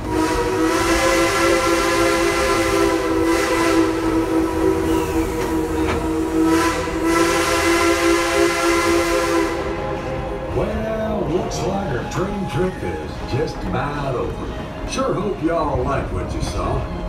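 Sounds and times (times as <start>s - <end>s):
steam locomotive whistle blast: 0.0s - 9.9s.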